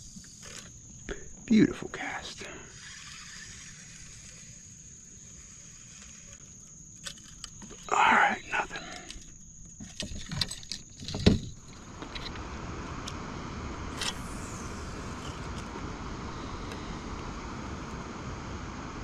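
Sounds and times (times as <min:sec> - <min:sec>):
steady rushing noise: 0:11.7 - 0:19.0.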